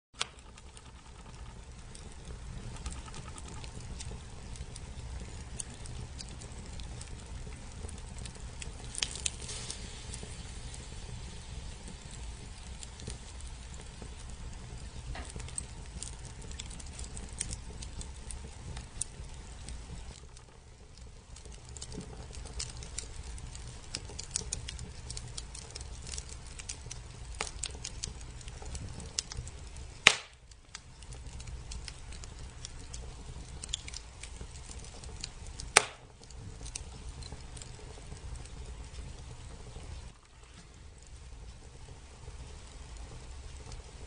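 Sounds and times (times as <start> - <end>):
logs crackling in fire: 0.2 - 44.0
low steady rumble: 0.2 - 44.0
loud sharp pops: 30.0 - 30.4, 35.7 - 36.1.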